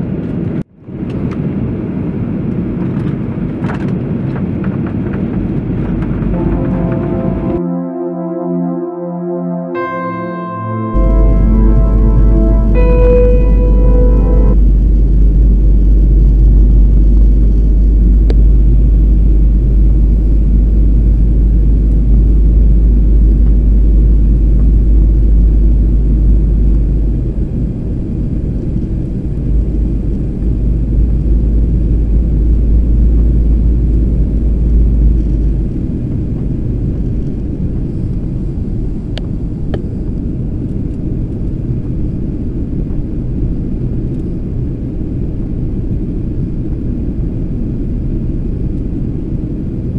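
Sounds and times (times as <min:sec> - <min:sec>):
heavy deep drone: 0:06.2 - 0:28.1, 0:28.7 - 0:37.0.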